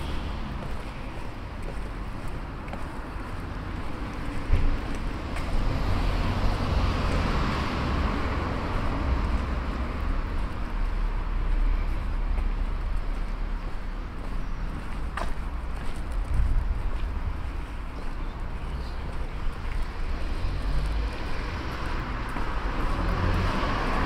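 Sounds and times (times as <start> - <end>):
constant low rumble: 14.7 - 19.9
car tyres passing: 19.4 - 24.0.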